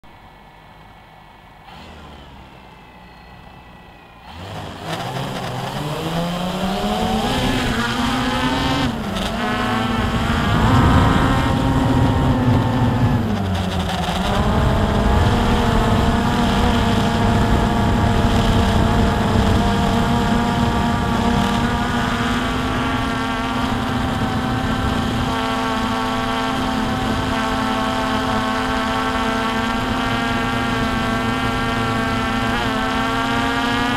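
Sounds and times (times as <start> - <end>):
drone motors whining: 0.2 - 33.9.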